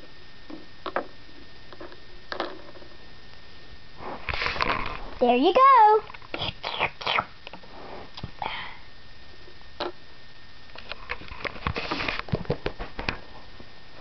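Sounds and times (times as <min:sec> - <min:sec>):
rustling close to microphone: 0:11.0 - 0:13.6.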